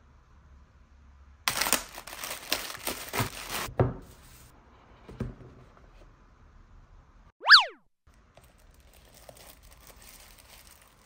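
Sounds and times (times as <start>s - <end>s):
packaging crinkling and tearing: 1.5s - 3.7s, 8.4s - 11.0s.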